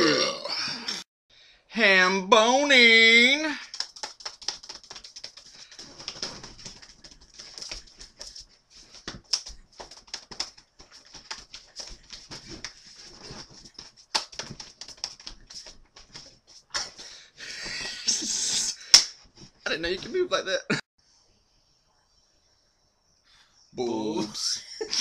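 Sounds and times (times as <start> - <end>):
hands slapping body: 3.6 - 17.0, 18.8 - 19.5.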